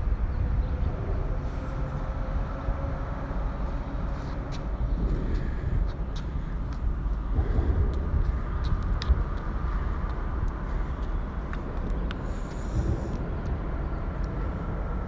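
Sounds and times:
road traffic rumble: 0.0s - 15.0s
footsteps on concrete: 4.1s - 13.2s.

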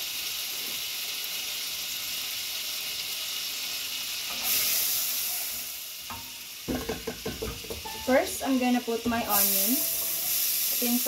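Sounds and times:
butter sizzling in a saucepan: 0.0s - 11.0s
wooden spoon working in a pan: 4.1s - 11.0s.

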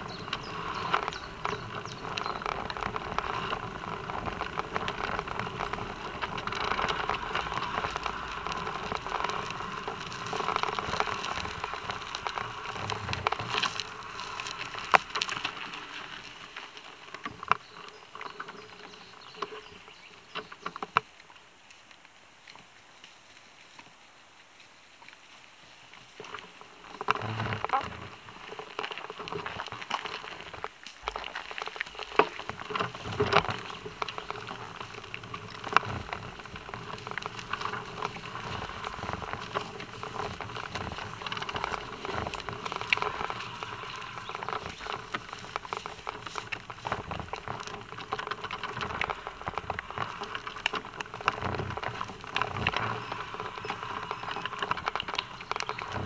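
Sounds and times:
bicycle ticking: 0.0s - 20.7s, 28.2s - 56.0s
bicycle rolling on asphalt: 0.0s - 56.0s
horse hooves on path: 0.0s - 56.0s.

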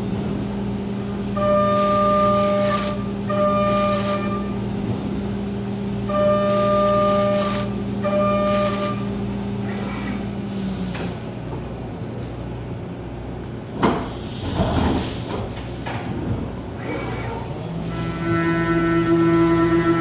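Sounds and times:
spindle whine: 0.8s - 12.4s.

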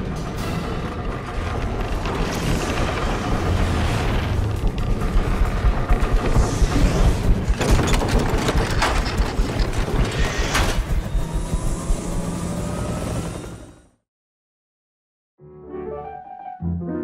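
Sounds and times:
deep rumble: 0.0s - 13.1s.

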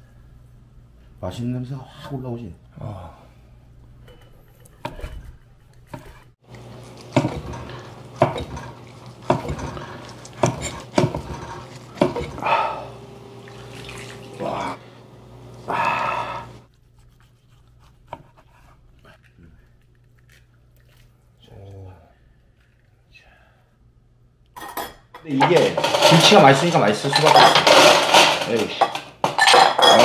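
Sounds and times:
knife scraping: 4.7s - 12.5s, 16.7s - 21.0s.

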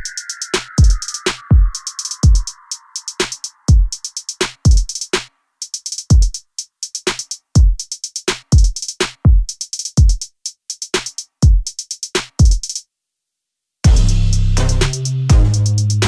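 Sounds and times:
rapid hi-hat ticks: 0.0s - 12.8s, 13.8s - 16.0s
deep kick drums: 13.9s - 14.2s, 15.3s - 15.7s.

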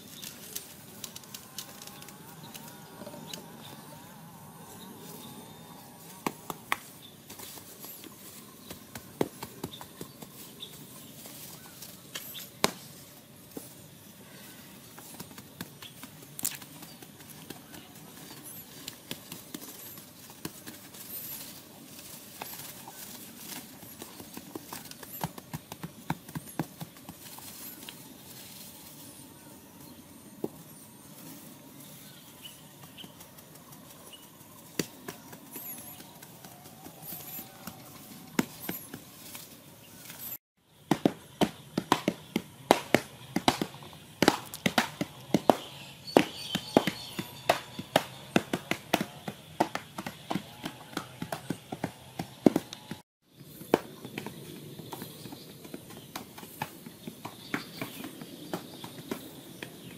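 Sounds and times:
digging tools chopping earth: 6.2s - 13.0s, 40.2s - 59.9s.

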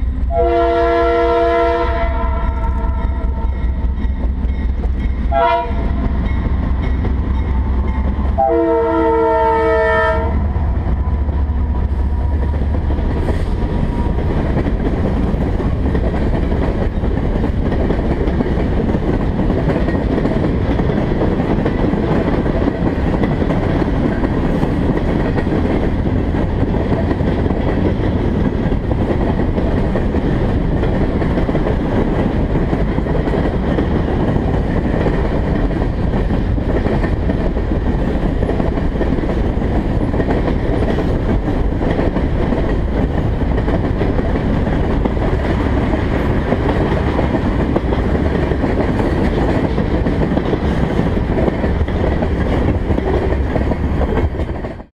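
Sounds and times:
clickety-clack over rail joints: 0.0s - 54.9s
locomotive rumble: 0.0s - 54.9s
locomotive air horn: 0.3s - 3.6s, 5.3s - 6.0s, 8.4s - 10.5s.

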